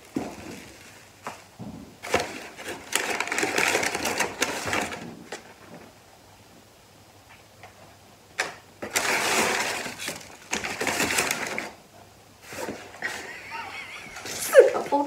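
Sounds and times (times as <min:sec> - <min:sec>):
packing material rustling: 0:00.0 - 0:05.7, 0:08.8 - 0:11.8.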